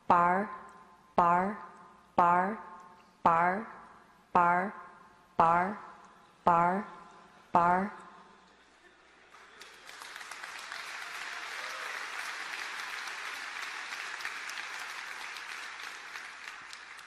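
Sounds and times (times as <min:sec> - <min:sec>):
large audience applauding: 0:09.2 - 0:17.0.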